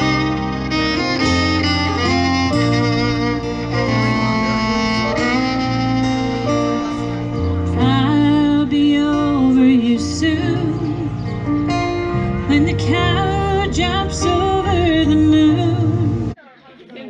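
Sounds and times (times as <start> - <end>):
live band music through speakers: 0.0 - 16.4.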